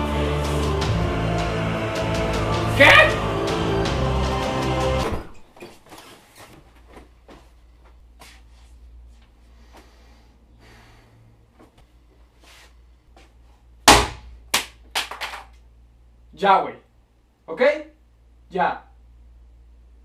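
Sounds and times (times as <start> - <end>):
music: 0.0 - 5.4
low hum: 0.0 - 5.5.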